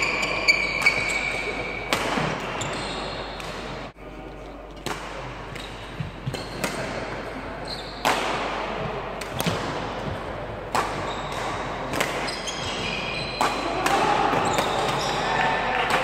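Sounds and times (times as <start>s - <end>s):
shoe squeaks on wooden floor: 0.0s - 1.8s, 2.6s - 3.4s, 11.0s - 11.4s, 12.2s - 13.7s
racket hitting shuttlecock: 0.0s - 3.8s, 4.8s - 7.2s, 8.0s - 16.0s.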